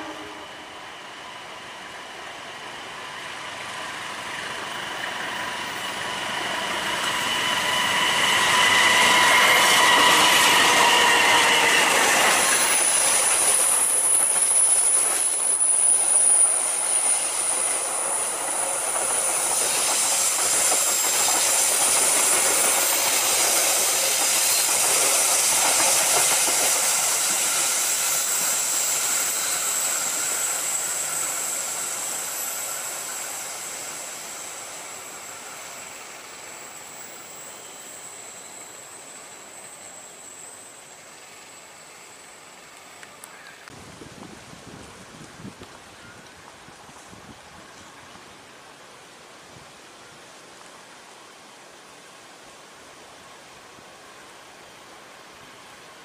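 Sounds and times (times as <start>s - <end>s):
diesel train passing: 0.0s - 43.3s
wheels squealing: 2.8s - 42.6s.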